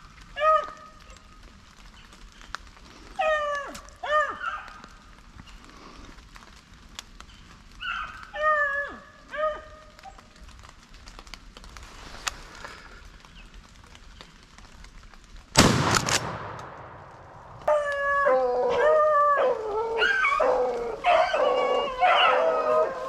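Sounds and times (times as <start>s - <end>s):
hounds baying and howling: 3.2s - 5.0s, 7.8s - 10.3s, 17.6s - 23.0s
loud shotgun shot: 15.6s - 17.4s.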